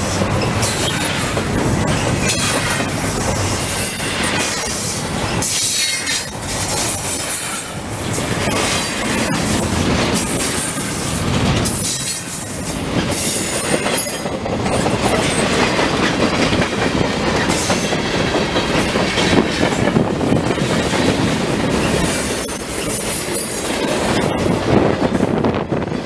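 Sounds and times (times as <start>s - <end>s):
freight train rumbling past: 0.0s - 26.0s.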